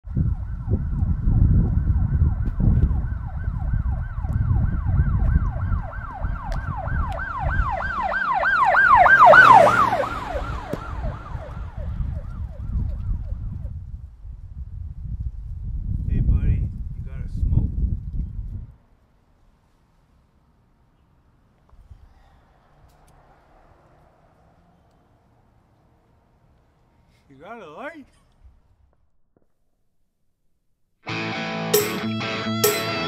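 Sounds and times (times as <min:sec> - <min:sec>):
siren yelping: 0:00.1 - 0:13.6.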